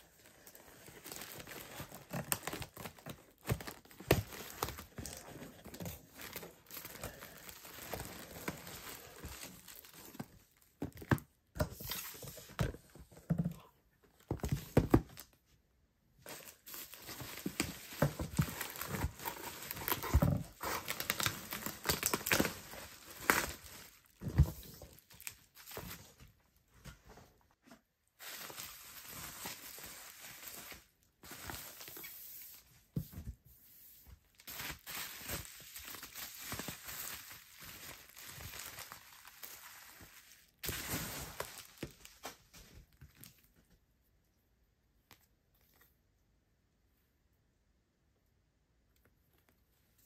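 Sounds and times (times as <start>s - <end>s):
plastic wrap crinkling: 0.0s - 11.0s, 16.2s - 26.2s, 28.2s - 32.2s, 34.3s - 43.3s.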